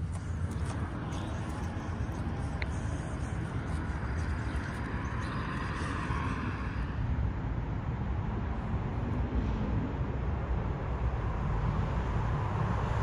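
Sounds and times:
car tyres passing: 0.0s - 7.2s
low traffic rumble: 0.0s - 13.0s.

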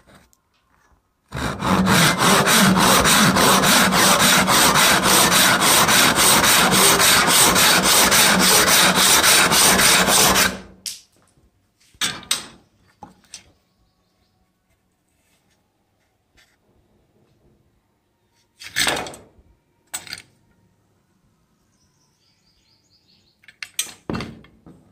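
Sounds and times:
hand saw cutting wood: 1.3s - 10.7s.

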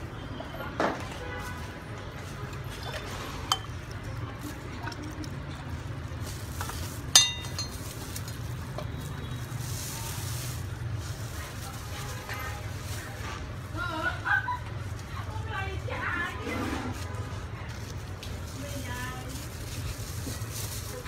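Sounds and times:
metal ladle clinking on pot: 2.8s - 4.0s, 7.1s - 8.4s.

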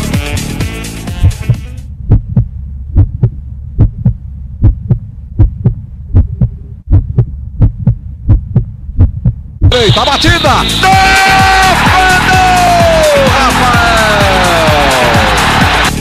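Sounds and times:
steady low drone: 1.1s - 9.7s
heartbeat thumps: 1.1s - 10.1s.

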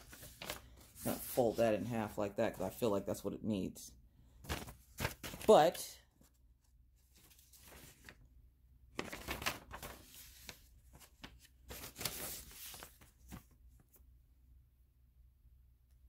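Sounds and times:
paper rustling and crinkling: 0.0s - 1.9s, 4.4s - 6.4s, 7.0s - 8.3s, 9.0s - 14.0s.

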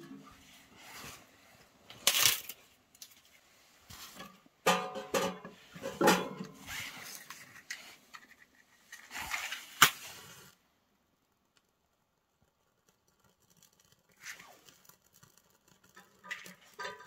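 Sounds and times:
logs knocking against steel stove: 4.7s - 6.4s.

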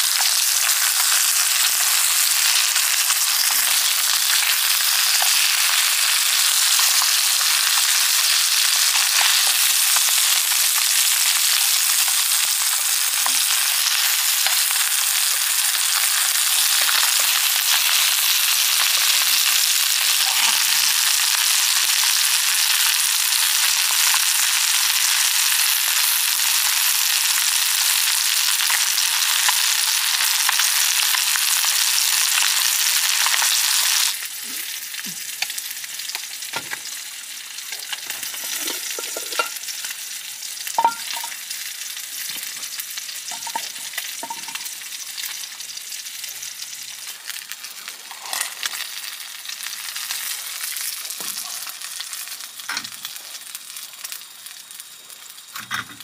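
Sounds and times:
food sizzling in a pan: 0.0s - 56.0s.

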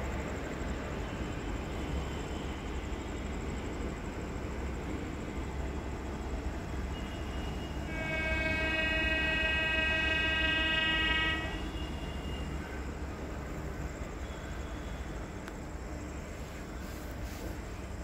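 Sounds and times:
train horn blast: 6.9s - 12.7s.

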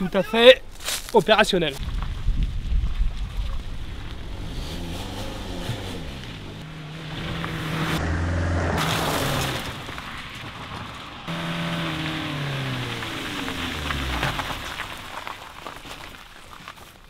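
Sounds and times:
car engine revving: 3.8s - 10.3s, 11.2s - 15.3s
tyres throwing up gravel: 8.8s - 17.0s.

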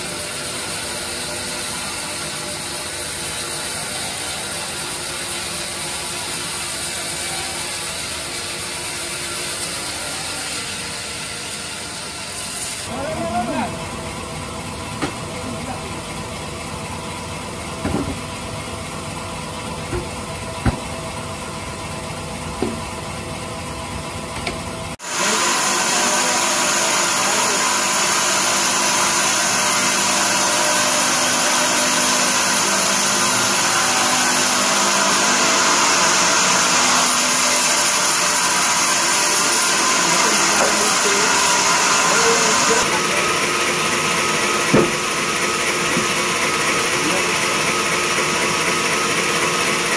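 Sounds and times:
bandsaw blade sawing log: 0.0s - 13.8s, 25.0s - 49.9s
band sawmill running: 0.0s - 49.9s
knocks of wood handled: 44.7s - 45.0s.

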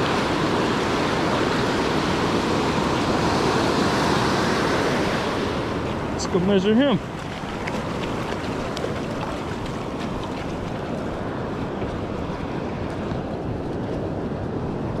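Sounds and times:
surf washing up beach: 0.0s - 15.0s
wind rumbling on microphone: 0.0s - 15.0s.

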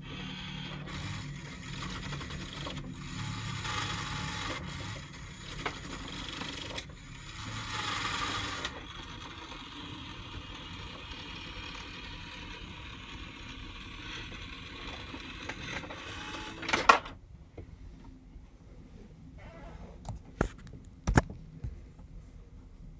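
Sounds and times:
small motors whirring: 0.0s - 16.8s.

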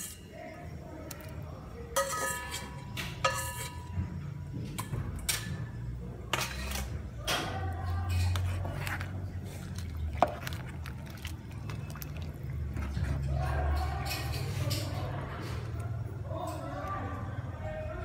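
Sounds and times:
metal utensil clinking on pot: 1.9s - 3.9s, 6.3s - 9.2s, 10.2s - 15.8s.

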